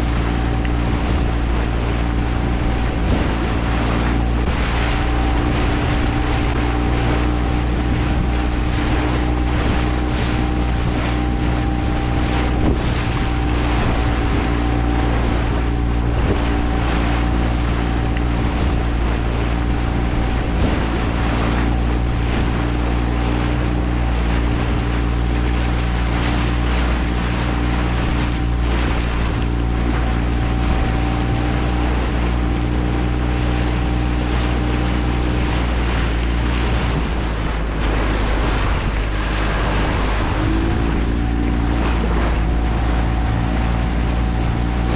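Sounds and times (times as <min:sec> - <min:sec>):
motorboat engine running: 0:00.0 - 0:44.9
water splashing along hull: 0:00.0 - 0:44.9
wind buffeting microphone: 0:00.0 - 0:44.9.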